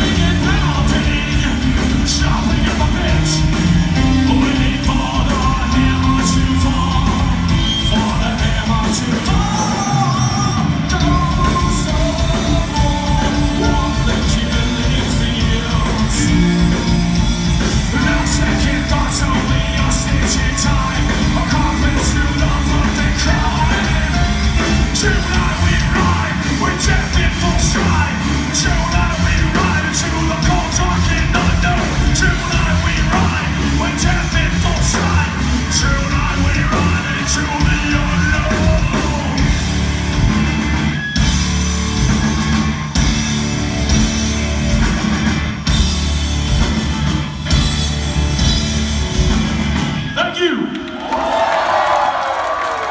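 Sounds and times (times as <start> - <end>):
person singing and yelling: 0.0 - 16.9, 17.7 - 39.6
drums with cymbal hits: 0.0 - 50.4
bass guitar: 0.0 - 50.6.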